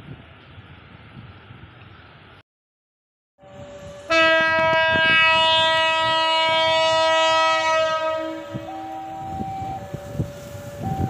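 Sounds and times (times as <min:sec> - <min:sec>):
locomotive air horn chord: 0:03.4 - 0:11.0.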